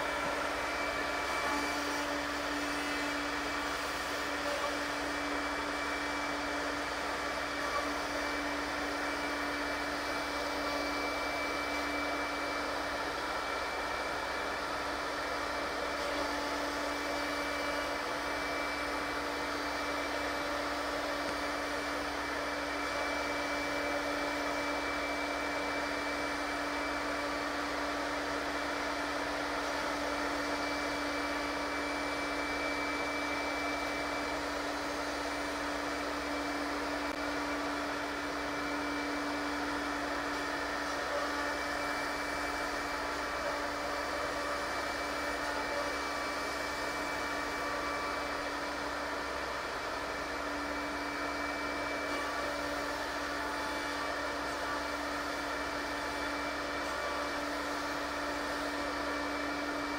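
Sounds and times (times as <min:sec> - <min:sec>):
mortising machine running: 0:00.0 - 0:59.9.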